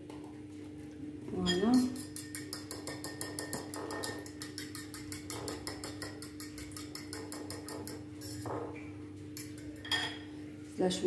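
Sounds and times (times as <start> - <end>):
fork clicking against bowl: 1.8 - 8.4, 9.3 - 10.0.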